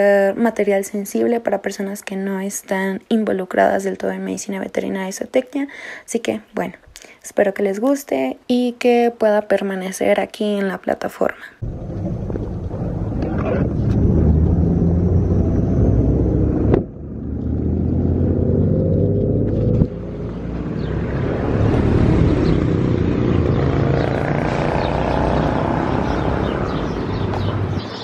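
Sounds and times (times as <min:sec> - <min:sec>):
low rumble of traffic: 0:11.6 - 0:28.0.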